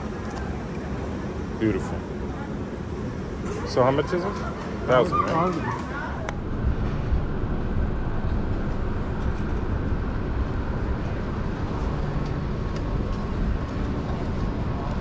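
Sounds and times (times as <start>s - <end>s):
motorcycle low rumble: 6.2s - 15.0s.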